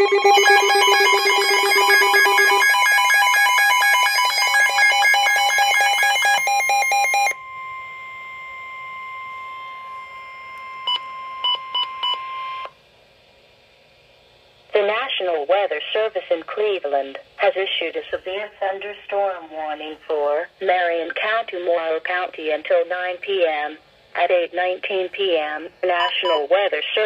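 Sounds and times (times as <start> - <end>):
steady alert tone: 0.0 - 3.4
rapid alarm beeping: 0.0 - 12.6, 26.0 - 26.5.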